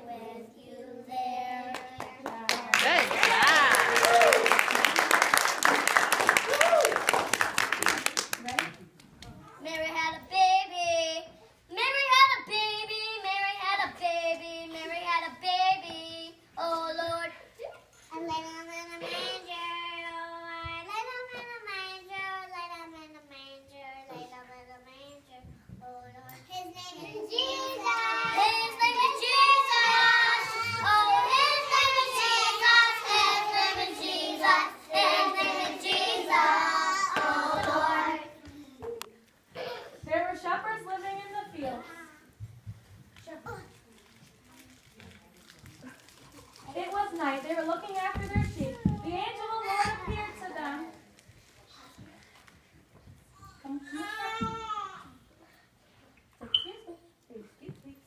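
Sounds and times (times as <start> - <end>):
young children singing together: 0.0 - 2.8, 26.8 - 38.6.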